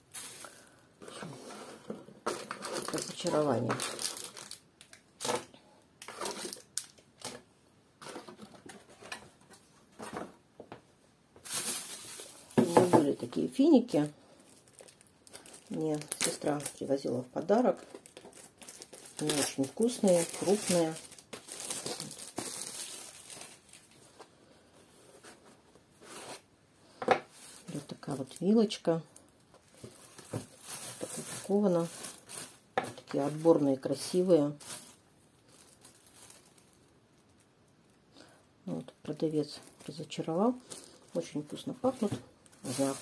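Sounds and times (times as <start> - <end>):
packaging rustling: 0.1 - 10.3, 11.4 - 13.3, 14.4 - 16.9, 17.8 - 24.3, 29.4 - 37.5, 39.6 - 43.0.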